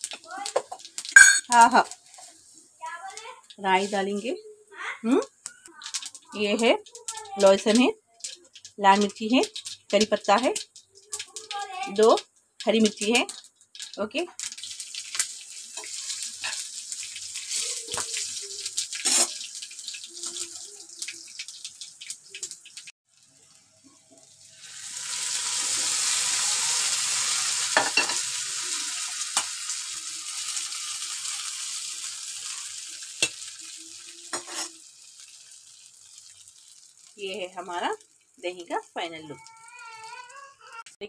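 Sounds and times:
spices crackling in hot oil: 0.0 - 41.0
loud hiss of hot oil: 24.4 - 35.2.

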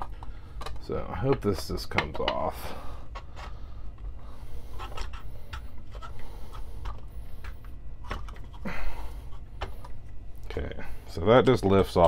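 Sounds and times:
small clicks and scrapes: 3.1 - 8.6.

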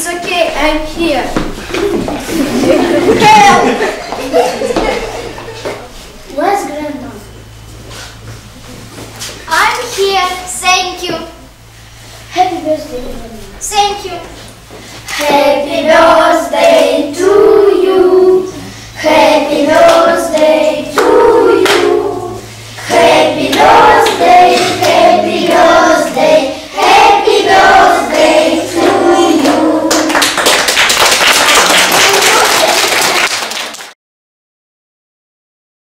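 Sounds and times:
children singing: 15.2 - 30.1
clapping: 29.4 - 34.0.

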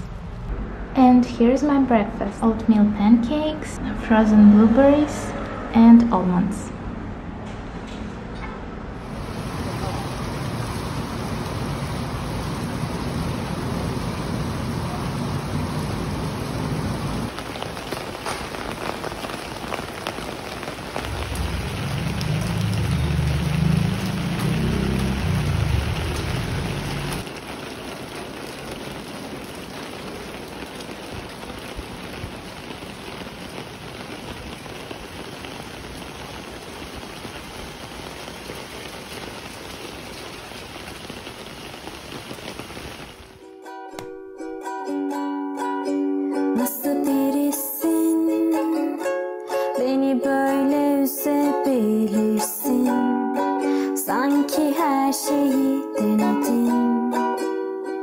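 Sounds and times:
rain pattering on pavement: 9.0 - 43.4
water drips ticking: 17.3 - 42.7.

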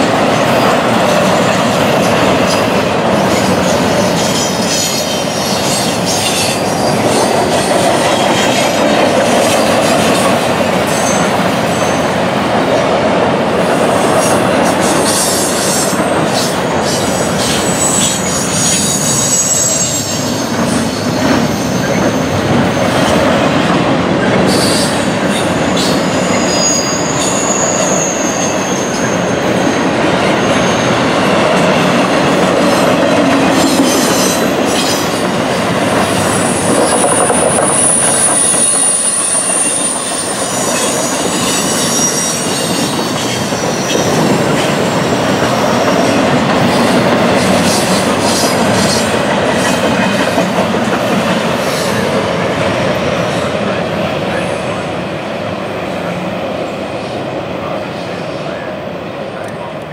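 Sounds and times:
train wheels rumbling on rails: 0.0 - 59.9
high-pitched wheel squeals: 16.9 - 23.0, 25.6 - 31.0, 36.3 - 44.2.

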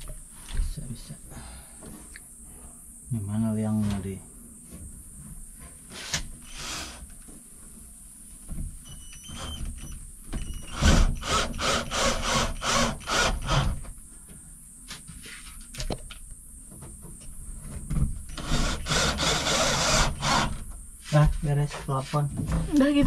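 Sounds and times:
drill driving screws into wood: 5.9 - 7.1, 8.9 - 13.8, 18.3 - 20.6.

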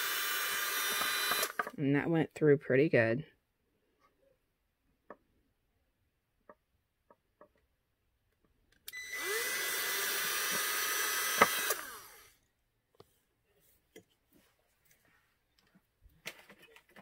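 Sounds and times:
cordless drill drilling into wood: 0.0 - 1.8, 8.9 - 12.4.

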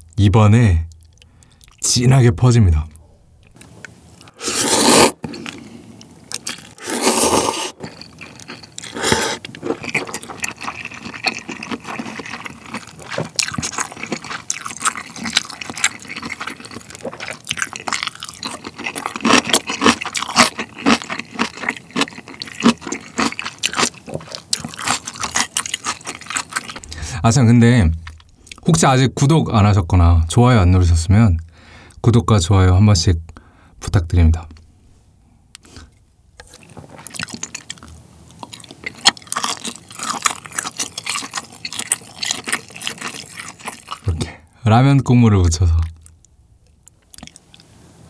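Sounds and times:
noodles being slurped: 4.4 - 5.7, 6.4 - 27.0
wet chewing: 6.3 - 27.2, 35.6 - 44.3, 45.8 - 47.7.

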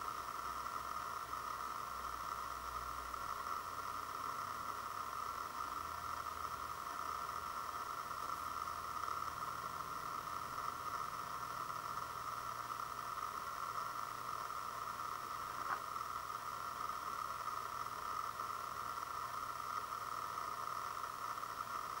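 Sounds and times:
recording noise hiss: 0.0 - 22.0.

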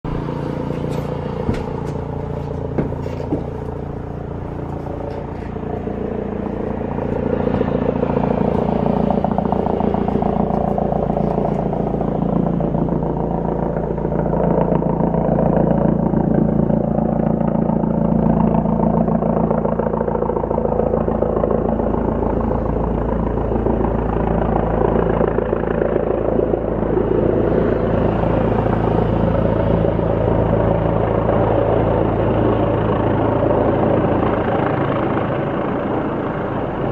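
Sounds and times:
helicopter rotor and turbine: 0.0 - 36.9.

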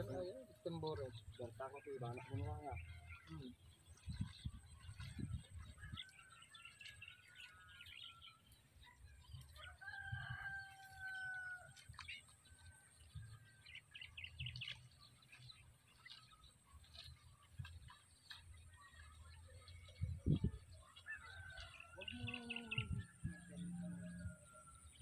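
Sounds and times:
small birds chirping: 0.0 - 24.2
rooster crowing: 9.8 - 11.7.

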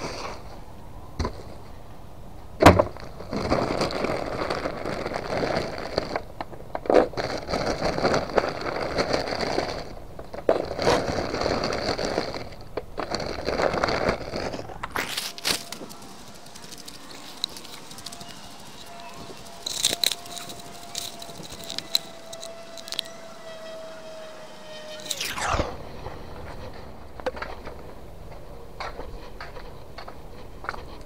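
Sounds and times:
plastic bags rustling: 7.0 - 23.1.

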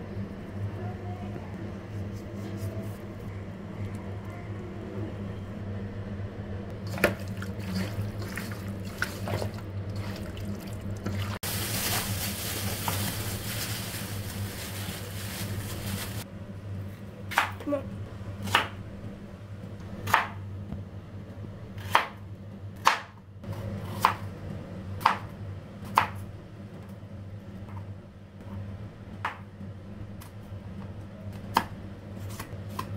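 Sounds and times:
low hum: 0.0 - 21.6
knife chopping on plastic board: 32.3 - 32.9.

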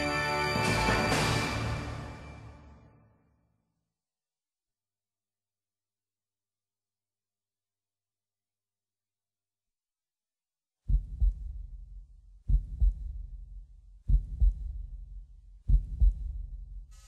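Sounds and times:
deep heartbeat thumps: 10.9 - 17.0.

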